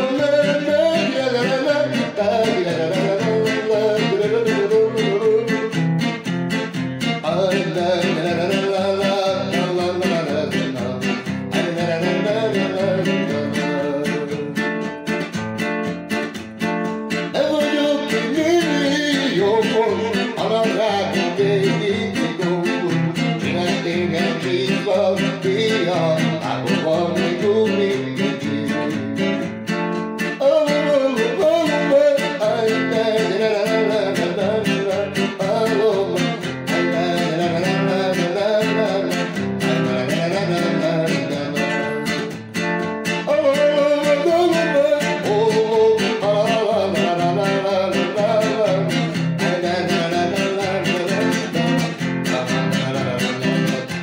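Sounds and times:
guitar music: 0.0s - 54.0s.

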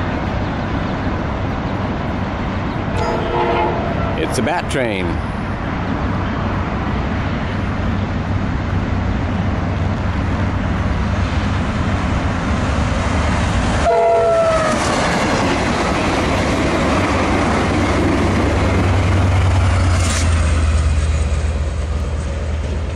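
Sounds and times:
locomotive engine drone: 0.0s - 22.9s
train wheels rumbling on rails: 0.0s - 22.9s
train horn: 3.0s - 4.2s, 13.8s - 14.8s.

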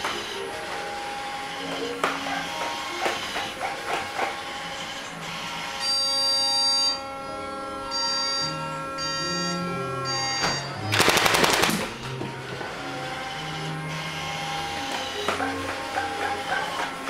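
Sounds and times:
synthesized electronic tones: 4.4s - 17.0s
fast electronic rattling burst: 11.0s - 12.0s.

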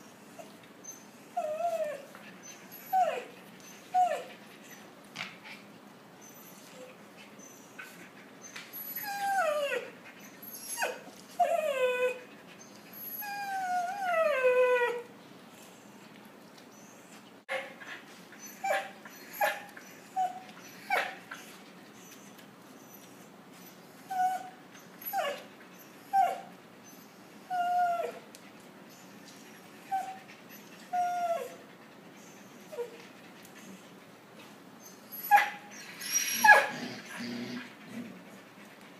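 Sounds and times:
puppies whimpering and yelping: 0.0s - 5.0s, 5.6s - 15.1s, 16.7s - 34.1s, 34.8s - 38.6s.

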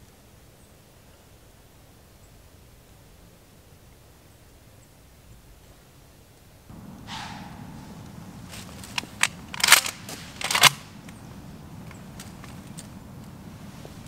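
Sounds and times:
shell dropping to ground: 6.8s - 13.4s
gun action clicking: 7.1s - 13.4s.

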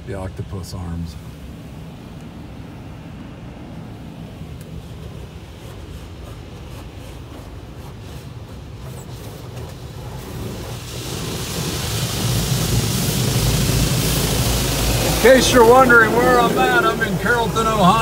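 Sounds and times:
car wash machinery rumbling: 0.0s - 18.0s
water spray hissing on car: 4.3s - 18.0s.

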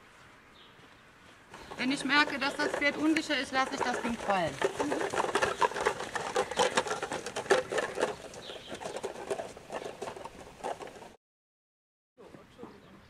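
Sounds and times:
footsteps crunching on sand: 0.0s - 3.1s
horse hooves on sand: 0.0s - 11.2s.

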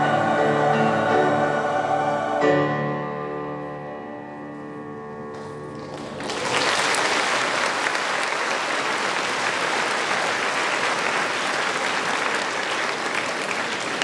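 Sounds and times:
choir and strings chord: 0.0s - 4.4s
audience applause: 5.7s - 14.0s.

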